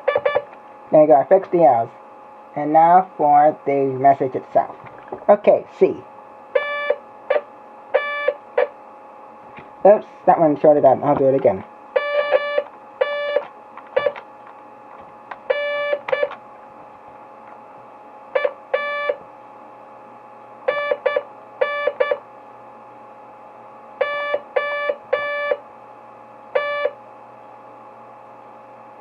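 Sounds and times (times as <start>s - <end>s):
morse code buzzer beeps: 0.0s - 0.5s, 6.5s - 8.8s, 11.9s - 14.2s, 15.5s - 16.4s, 18.3s - 19.2s, 20.6s - 22.2s, 24.0s - 25.6s, 26.5s - 27.0s
faint steady hum: 0.0s - 29.0s.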